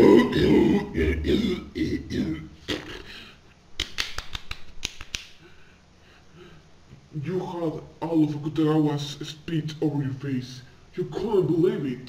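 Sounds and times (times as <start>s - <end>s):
man coughing and hawking: 0.0s - 3.3s.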